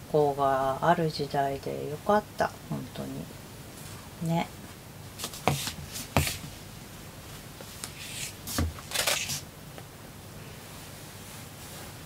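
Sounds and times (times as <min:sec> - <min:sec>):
cloth rustling: 0:05.2 - 0:06.6.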